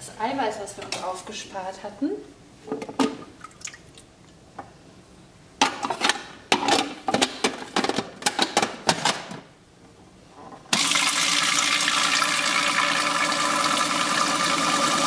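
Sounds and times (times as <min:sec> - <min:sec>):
plastic parts clicking and clattering: 0:05.7 - 0:09.4.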